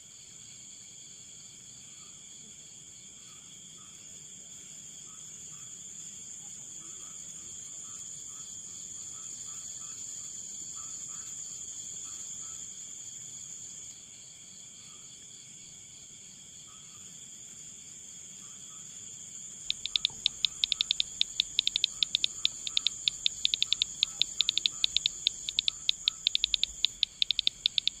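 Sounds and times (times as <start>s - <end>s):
rapid pulsed insect chirping: 17.8s - 28.0s
high-pitched insect trill: 19.7s - 28.0s.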